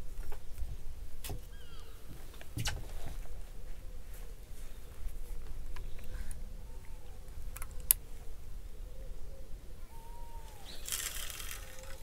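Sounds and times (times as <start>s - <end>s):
distant bird mewing calls: 1.4s - 2.1s, 5.8s - 12.0s.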